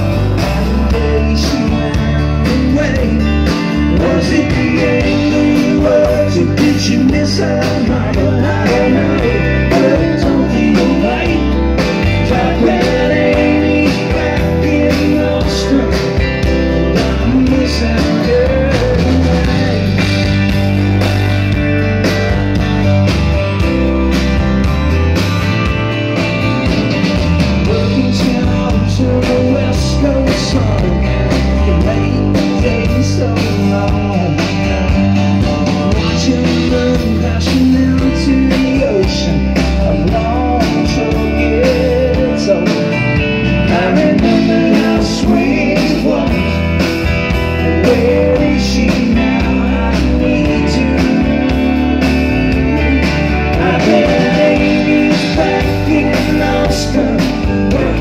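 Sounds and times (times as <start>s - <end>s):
man singing lead: 0.0s - 20.7s, 27.5s - 58.0s
country rock band playing live: 0.0s - 58.0s.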